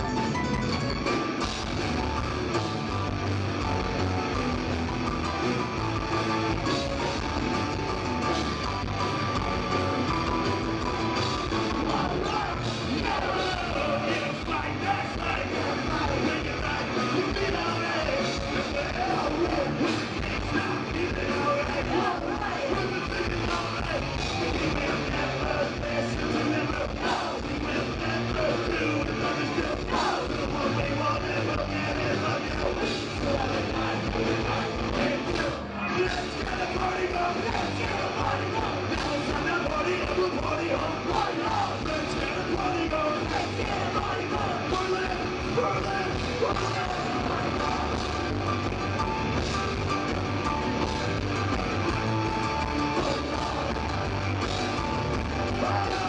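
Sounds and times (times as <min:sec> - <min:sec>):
drums: 0:00.0 - 0:56.0
electric guitars: 0:00.0 - 0:56.0
person singing: 0:11.6 - 0:49.2, 0:52.3 - 0:56.0.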